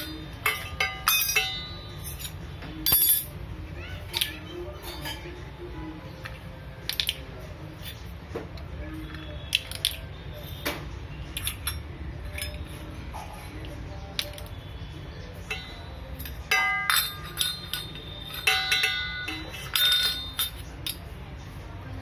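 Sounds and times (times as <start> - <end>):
spoon clinking on steel tumbler: 15.4 - 21.0.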